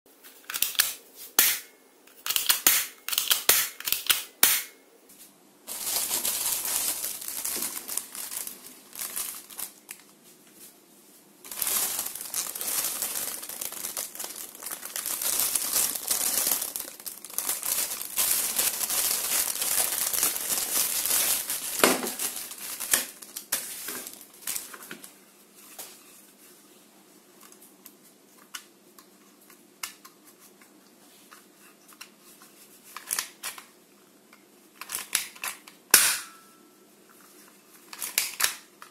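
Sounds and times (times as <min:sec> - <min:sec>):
plastic bag crinkling and tearing: 0:05.7 - 0:10.1, 0:11.5 - 0:24.8.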